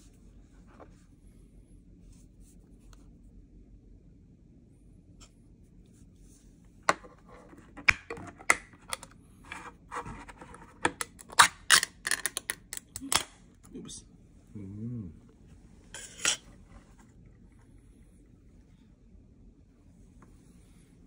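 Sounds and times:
metal lid scraping: 15.9s - 16.6s.

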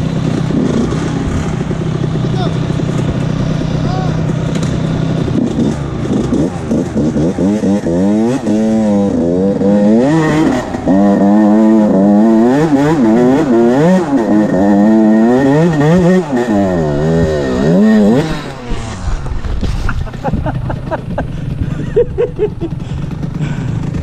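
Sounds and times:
motocross bike engine revving: 0.0s - 24.0s.

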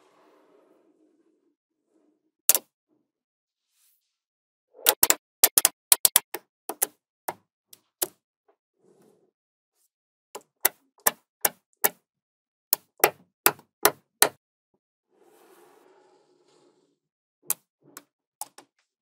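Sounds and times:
magnetic balls clicking together: 4.9s - 6.9s.

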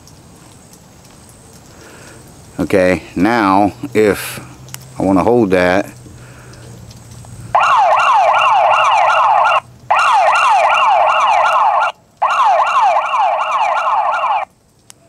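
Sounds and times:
fast yelping siren: 7.5s - 14.5s.

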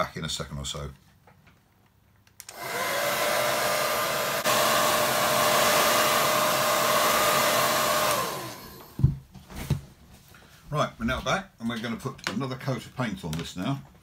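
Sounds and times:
hair dryer switch click: 2.4s - 3.0s
hair dryer blowing: 2.4s - 9.1s.

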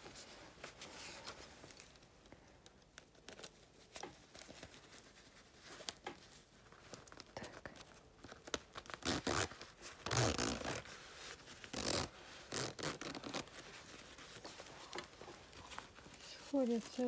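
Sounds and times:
padded fabric rustling: 0.0s - 2.2s, 8.3s - 17.0s
zipper being zipped: 9.0s - 10.9s, 11.6s - 13.6s.

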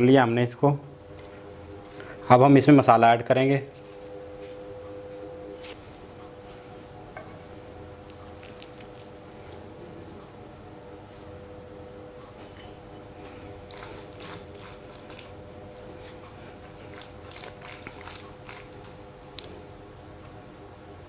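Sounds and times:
faint steady hum: 0.0s - 21.0s
wet squelching of chicken: 13.6s - 19.6s.

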